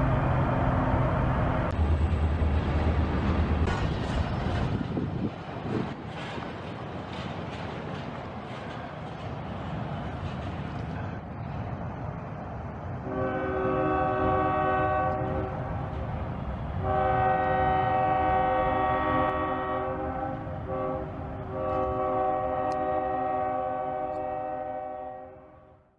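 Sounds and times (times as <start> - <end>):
passing train rumble: 0.0 - 25.9
locomotive air horn blasts: 13.0 - 15.7, 16.8 - 25.7.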